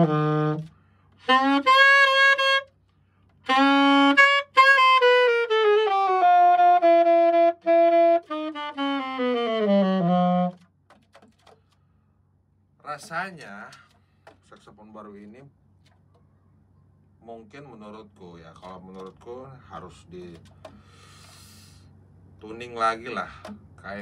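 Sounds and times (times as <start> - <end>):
alto saxophone playing: 0.0 - 10.7.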